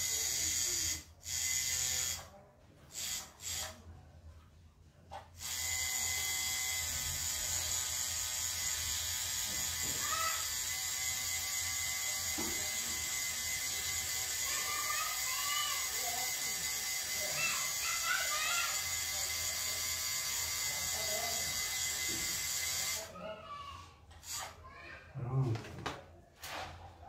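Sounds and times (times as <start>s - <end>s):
tattoo machine buzzing: 0.0s - 2.3s, 2.9s - 3.8s, 5.4s - 23.1s, 24.2s - 24.6s.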